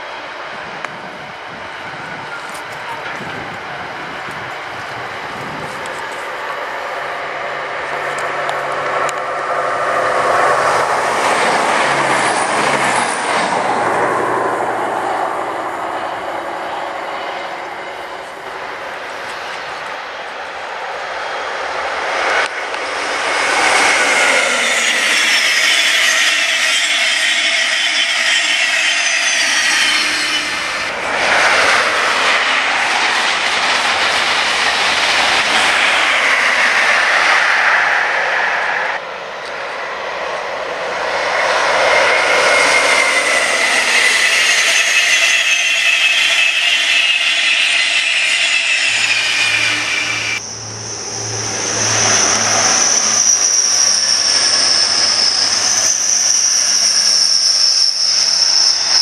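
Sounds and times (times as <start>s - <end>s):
diesel train engine drone: 0.0s - 59.0s
high-speed train passing: 0.0s - 59.0s
high steady whine: 42.1s - 55.6s.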